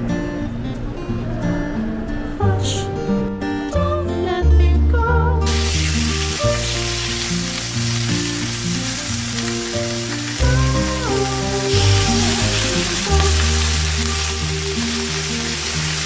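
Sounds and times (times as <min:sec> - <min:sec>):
background music: 0:00.0 - 0:16.0
food sizzling in hot oil: 0:05.5 - 0:16.0.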